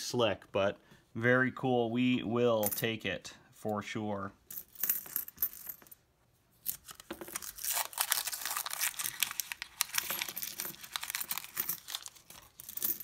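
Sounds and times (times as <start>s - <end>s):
paper wrapper tearing and crinkling: 6.8s - 12.6s.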